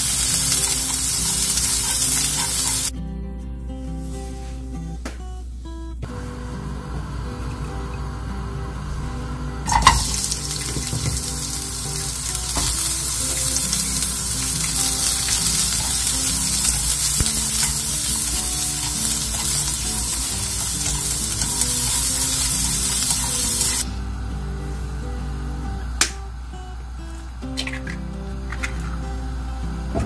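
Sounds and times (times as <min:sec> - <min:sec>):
carrots sizzling in hot oil: 0:00.0 - 0:02.9, 0:09.7 - 0:23.8.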